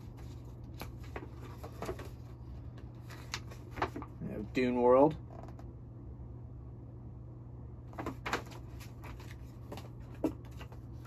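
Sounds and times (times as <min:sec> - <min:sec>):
paper crackling: 0:00.0 - 0:04.3, 0:07.9 - 0:11.0
steady low hum: 0:00.0 - 0:11.0.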